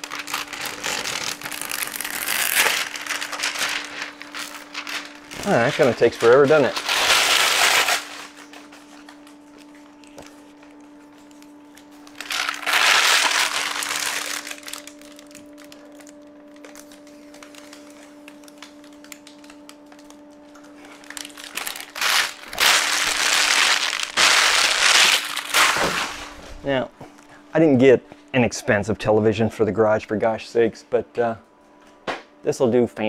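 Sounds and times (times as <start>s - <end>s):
plastic film crinkling: 0.0s - 10.1s, 10.7s - 26.4s.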